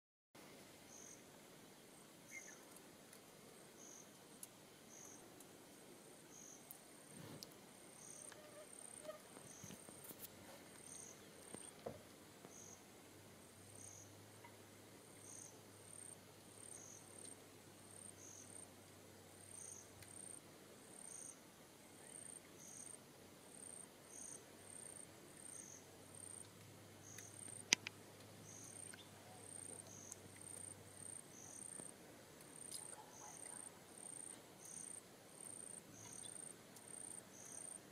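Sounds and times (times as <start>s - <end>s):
insects chirping: 3.6s - 5.3s, 6.3s - 6.8s, 7.9s - 14.6s, 15.2s - 21.4s, 22.0s - 37.9s
high insect trill: 8.0s - 11.6s, 13.7s - 14.2s, 15.2s - 17.3s, 19.5s - 21.4s, 22.1s - 31.9s, 32.6s - 37.9s.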